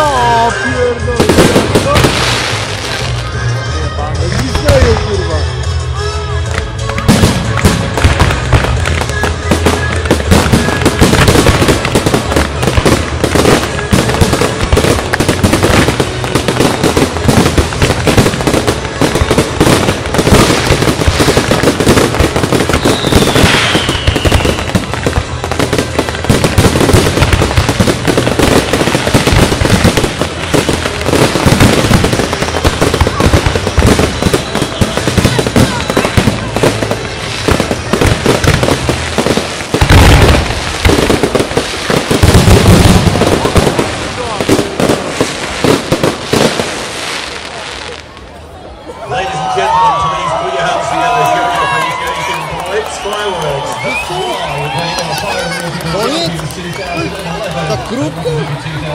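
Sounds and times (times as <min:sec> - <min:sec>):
fireworks bursts and crackling: 0:00.0 - 0:58.9
falling firework whistle: 0:19.6 - 0:24.9, 0:31.4 - 0:36.8, 0:53.6 - 0:55.3.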